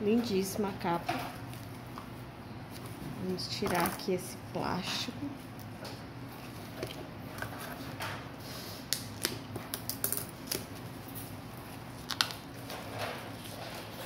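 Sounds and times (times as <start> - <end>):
plastic wrap crinkling: 8.9 - 14.0.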